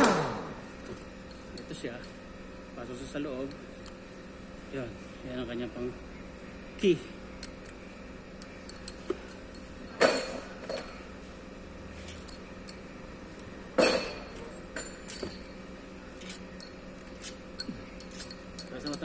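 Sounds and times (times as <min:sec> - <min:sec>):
metal bolts clinking: 0:01.3 - 0:02.2, 0:08.4 - 0:11.0, 0:12.1 - 0:12.9, 0:13.8 - 0:19.0.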